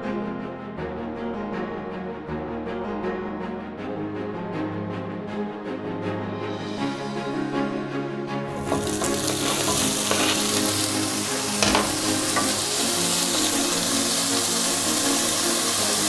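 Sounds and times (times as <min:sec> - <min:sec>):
background music: 0:00.0 - 0:16.0
wooden spatula stirring: 0:08.5 - 0:14.2
meat sizzling in a pan: 0:08.5 - 0:16.0.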